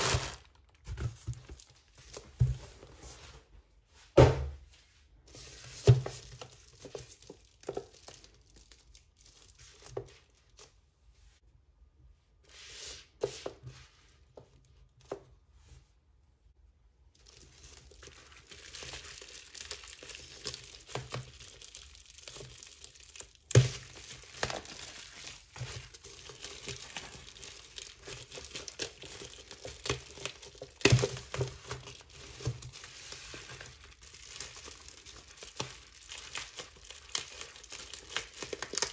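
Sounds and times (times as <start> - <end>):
bubble wrap cracks: 0.0 - 2.3, 5.8 - 10.8, 17.2 - 38.9
bubble wrap crinkling: 0.0 - 3.6, 5.2 - 10.8, 17.1 - 38.9.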